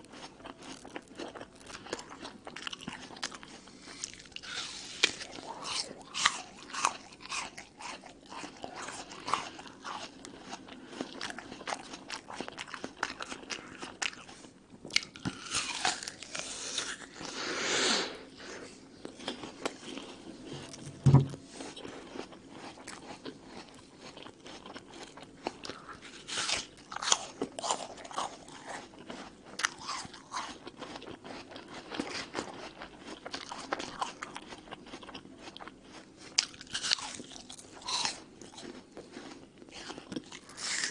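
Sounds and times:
apple crunching and chewing: 0:00.0 - 0:17.5, 0:18.6 - 0:40.9
low thump: 0:20.9 - 0:21.4.

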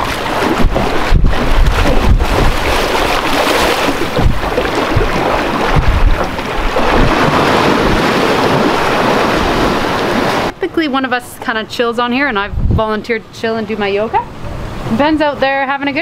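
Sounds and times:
wind buffeting microphone: 0:00.0 - 0:10.5, 0:12.2 - 0:13.2
water splashing and sloshing: 0:00.0 - 0:10.6.

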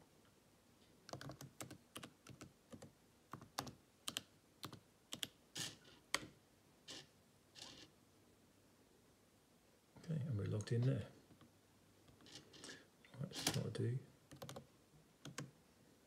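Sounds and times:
typing on computer keyboard: 0:01.1 - 0:06.3, 0:14.3 - 0:15.5.

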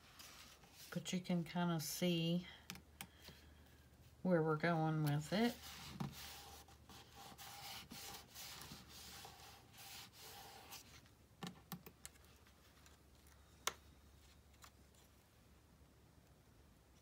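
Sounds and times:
hands rubbing paper: 0:05.4 - 0:11.0.

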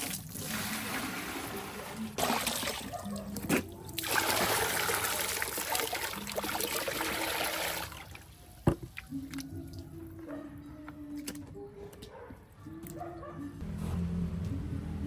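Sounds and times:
water pouring into plastic bucket: 0:00.0 - 0:02.9, 0:04.0 - 0:08.2.

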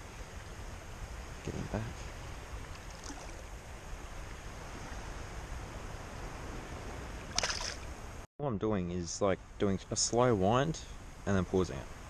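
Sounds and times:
shallow water washing: 0:00.0 - 0:08.2
brief splash: 0:02.9 - 0:03.4, 0:07.3 - 0:07.9.

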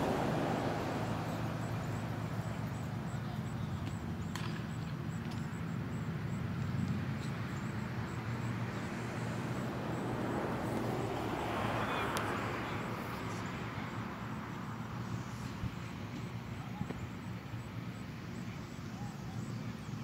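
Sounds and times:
faint voices: 0:00.0 - 0:05.6, 0:11.5 - 0:20.0
vehicle passing: 0:00.0 - 0:18.8.

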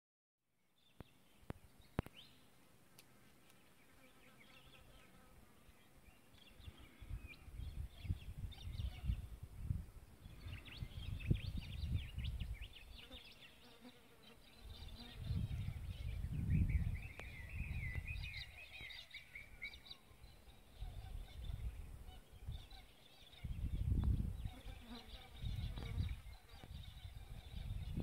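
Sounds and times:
birds chirping: 0:00.7 - 0:28.0
wind gusting over microphone: 0:06.9 - 0:12.9, 0:14.8 - 0:18.6, 0:20.8 - 0:22.6, 0:23.4 - 0:24.6, 0:25.4 - 0:28.0.

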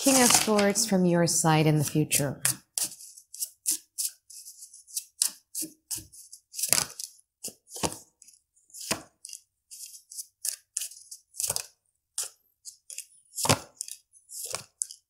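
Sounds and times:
cards shuffling: 0:00.0 - 0:00.8, 0:02.4 - 0:08.0, 0:12.8 - 0:15.0.

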